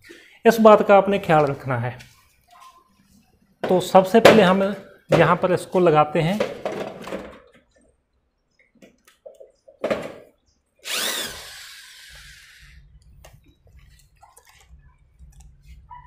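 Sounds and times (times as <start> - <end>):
cordless drill whining: 10.8 - 12.9.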